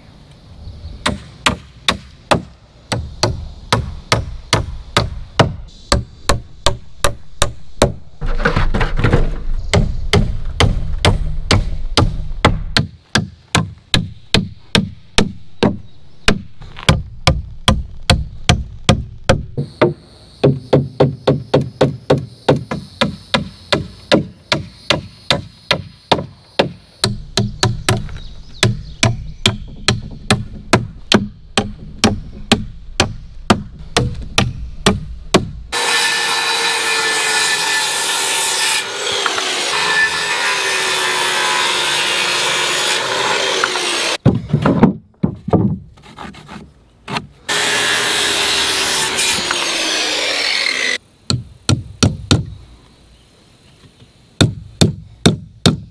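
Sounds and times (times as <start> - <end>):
circular saw cutting lumber: 35.7 - 44.2, 47.5 - 51.0.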